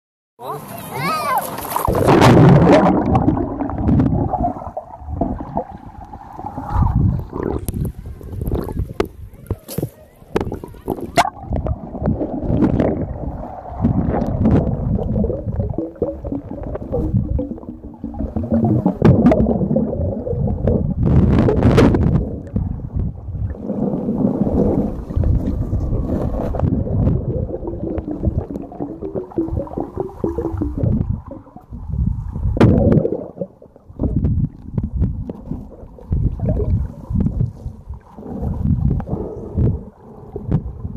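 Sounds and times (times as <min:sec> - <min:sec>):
underwater churning and gurgling: 0:00.6 - 0:40.9
air bubbles rushing: 0:01.5 - 0:09.2, 0:10.3 - 0:40.9.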